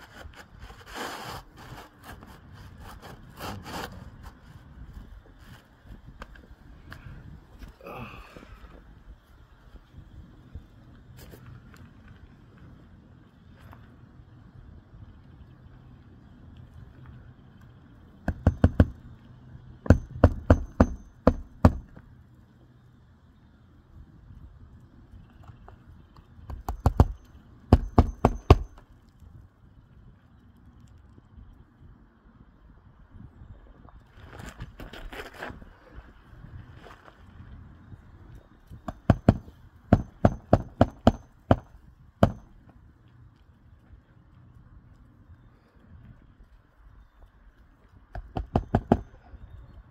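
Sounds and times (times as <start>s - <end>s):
hammer striking nail: 18.2s - 19.0s, 19.8s - 22.0s, 26.5s - 28.8s, 38.8s - 42.5s, 48.1s - 49.1s.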